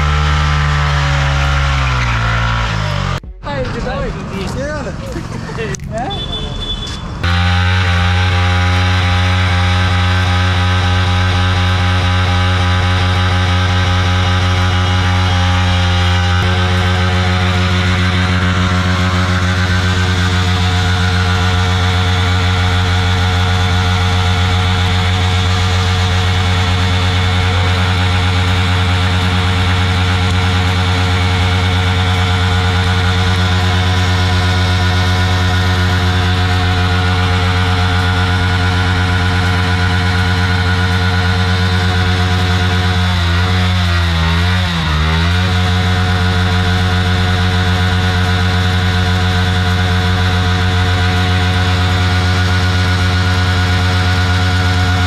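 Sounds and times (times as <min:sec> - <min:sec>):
motorcycle engine at high revs: 0:00.0 - 0:03.2, 0:05.1 - 0:55.0
tyre spinning in a burnout: 0:00.0 - 0:03.2.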